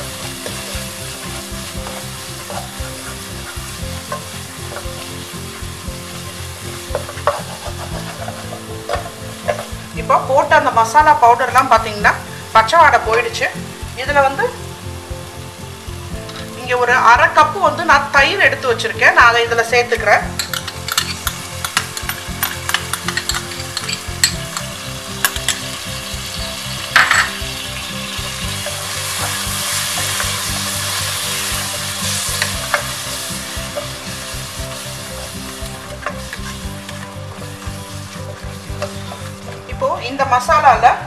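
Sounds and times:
food sizzling in a pan: 0.0s - 41.0s
spatula scraping a pan: 0.2s - 9.8s, 20.3s - 24.7s, 28.1s - 39.7s.

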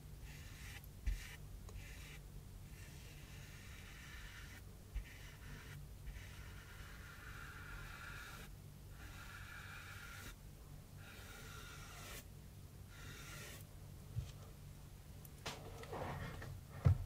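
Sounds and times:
paintbrush swishing on cardboard: 0.3s - 7.0s.

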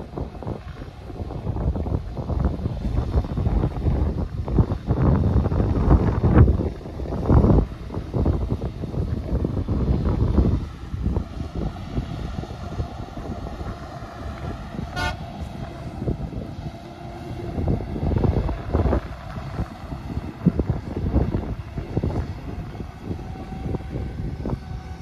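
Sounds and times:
distant harvester running: 0.0s - 25.0s
wind buffeting microphone: 0.0s - 25.0s
short horn toot: 14.9s - 15.3s.

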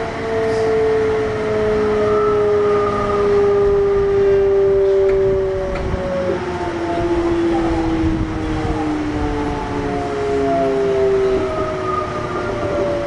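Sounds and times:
electric train motors whining: 2.6s - 8.8s.

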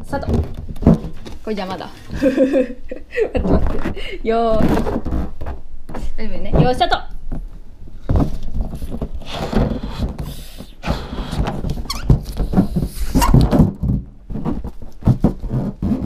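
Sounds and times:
rubber balloon squeaking and rubbing: 3.3s - 5.7s, 8.0s - 16.0s
rushing air: 8.7s - 11.7s.

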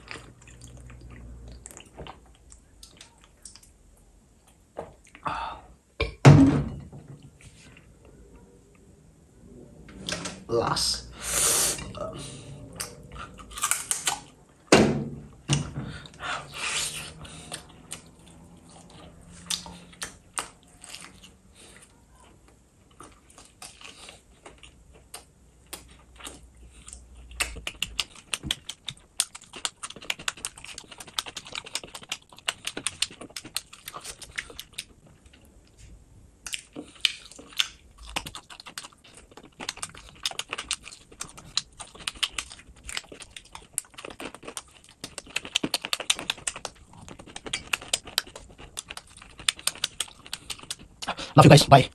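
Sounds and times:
chewing and lip-smacking: 0.0s - 5.2s, 16.0s - 51.4s.

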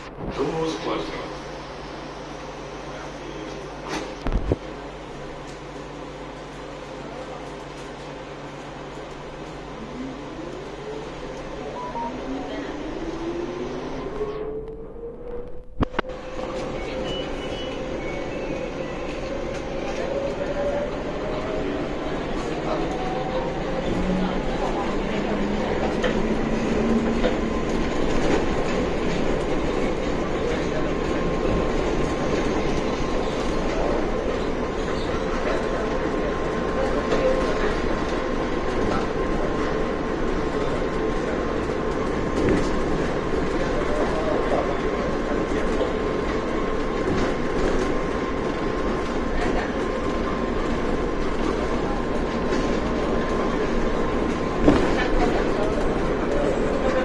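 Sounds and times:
train rumbling: 0.0s - 57.0s
faint high tone: 11.6s - 12.7s.

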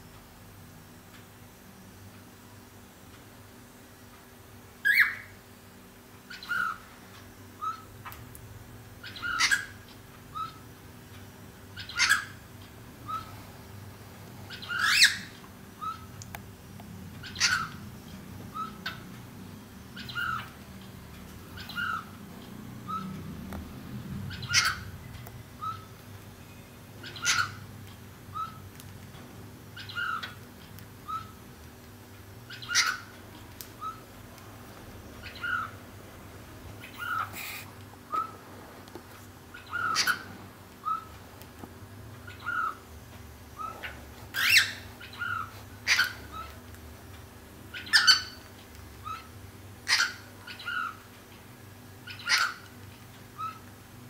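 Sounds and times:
cockatiel calling: 4.8s - 5.3s, 6.3s - 6.8s, 7.6s - 8.2s, 9.0s - 10.6s, 11.8s - 12.4s, 13.0s - 13.4s, 14.5s - 16.1s, 17.2s - 17.8s, 18.5s - 19.0s, 20.0s - 20.6s, 21.6s - 22.2s, 22.9s - 23.2s, 24.3s - 24.9s, 25.6s - 25.9s, 27.0s - 27.6s, 28.3s - 28.6s, 29.8s - 30.4s, 31.0s - 31.4s, 32.5s - 33.2s, 33.8s - 34.1s, 35.2s - 35.8s, 36.8s - 38.4s, 39.5s - 41.2s, 42.2s - 42.8s, 43.6s - 46.5s, 47.7s - 51.0s, 52.0s - 52.7s, 53.4s - 53.7s.

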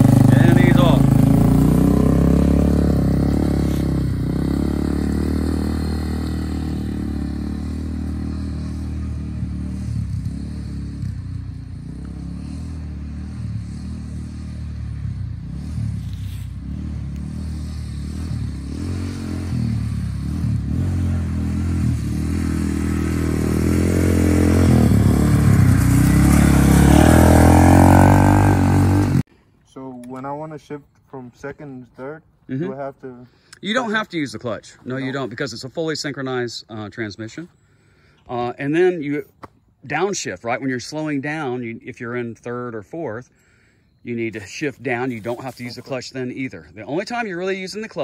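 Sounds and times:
quad bike engine running: 0.0s - 29.2s.

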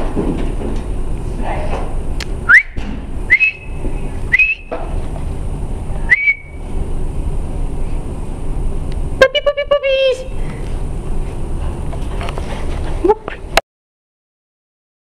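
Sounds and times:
steady background hum: 0.0s - 13.6s
person whistling rising whistles: 2.5s - 4.7s, 6.1s - 6.6s.

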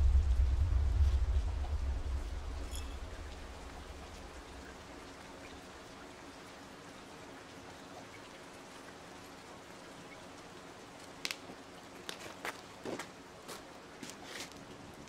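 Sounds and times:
rain hissing: 0.0s - 6.8s.

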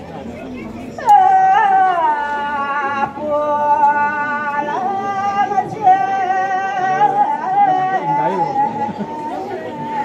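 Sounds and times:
person chanting: 1.0s - 10.0s.

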